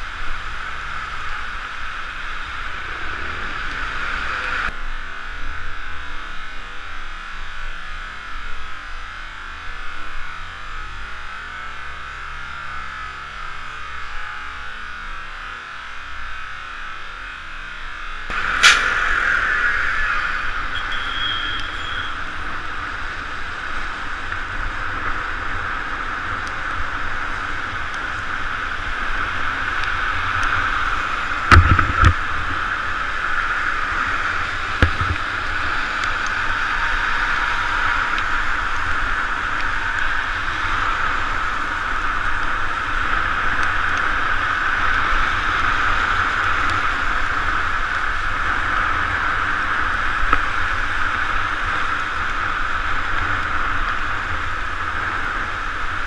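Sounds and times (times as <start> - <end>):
bicycle tyres on wet pavement: 0.0 - 56.0
wind rushing: 18.3 - 20.9.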